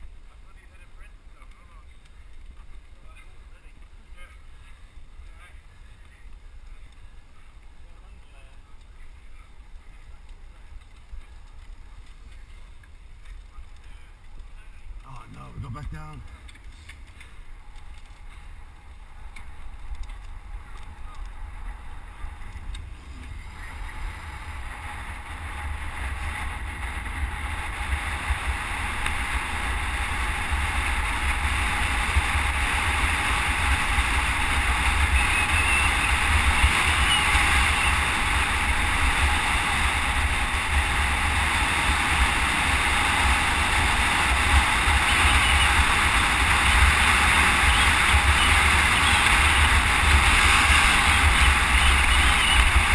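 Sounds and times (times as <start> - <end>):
wind buffeting microphone: 18.5 - 52.9.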